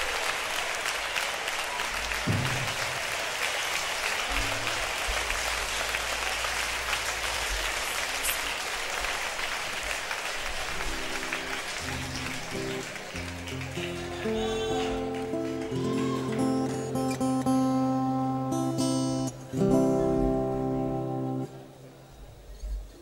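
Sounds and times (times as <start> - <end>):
audience applauding: 0.0 - 21.6
plucked acoustic guitar: 11.1 - 21.7.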